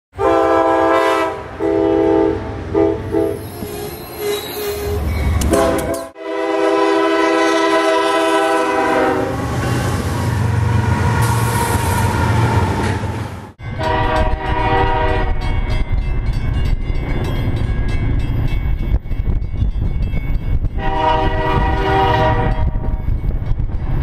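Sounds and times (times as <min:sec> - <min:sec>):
locomotive air horn blasts: 0:00.2 - 0:03.5, 0:05.4 - 0:09.8, 0:13.8 - 0:15.4, 0:20.8 - 0:23.0
locomotive rumbling past: 0:00.2 - 0:24.0.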